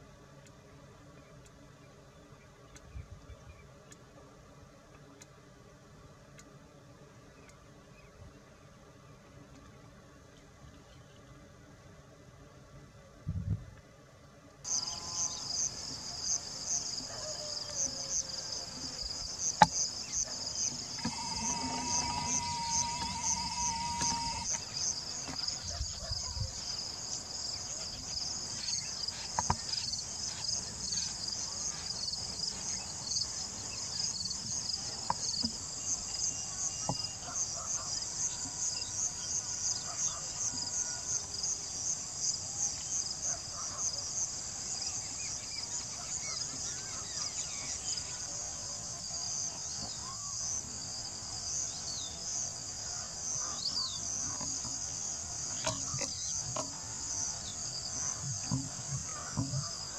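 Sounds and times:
insects trilling: 14.6 - 59.9.

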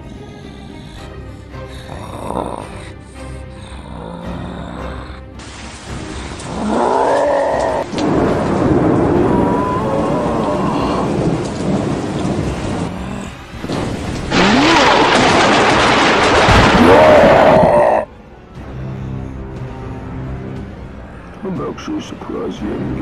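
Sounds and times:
monster roaring: 1.8 - 5.4, 6.5 - 11.5, 14.2 - 18.1
thunder rumbling and crashing: 5.5 - 18.1.

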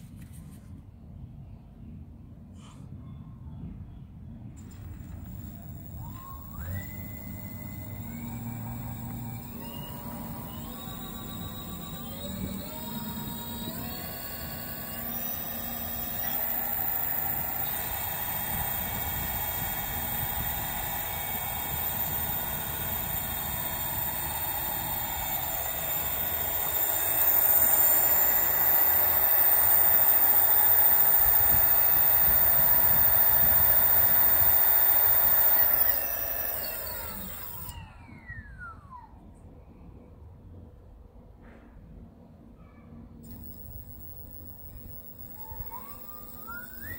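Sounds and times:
electric motor whine: 4.6 - 38.2, 43.3 - 46.9.

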